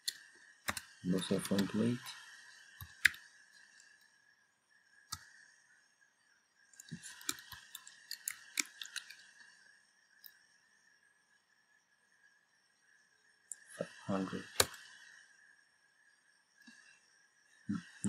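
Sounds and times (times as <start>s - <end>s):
computer keyboard typing: 0.0s - 1.9s, 2.8s - 3.2s, 6.8s - 9.2s.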